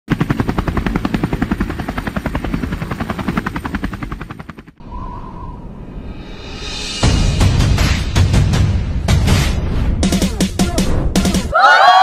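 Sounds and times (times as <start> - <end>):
helicopter rotor chopping: 0.1 - 4.8.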